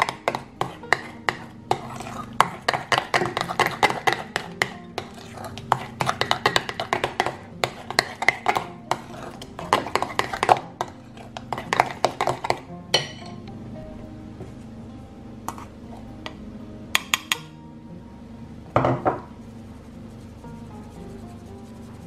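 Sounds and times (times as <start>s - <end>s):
spoon beating batter in glass bowl: 0.0s - 13.3s.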